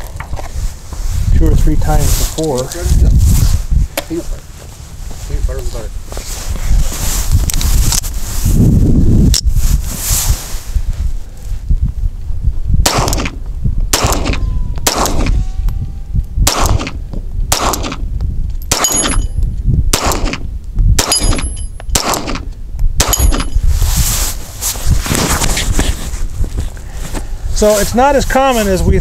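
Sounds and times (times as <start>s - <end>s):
pistol shots: 12.8s - 15.3s, 16.4s - 18.0s, 19.9s - 20.4s, 21.0s - 23.5s
metallic ring of steel target: 18.6s - 19.4s, 21.0s - 22.0s, 23.0s - 23.6s.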